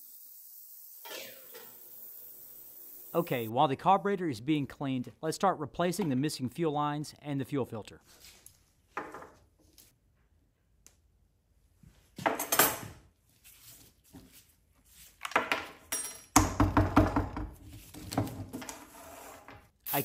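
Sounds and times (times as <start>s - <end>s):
tools clattering on wooden workbench: 9.0s - 9.4s, 12.2s - 13.0s.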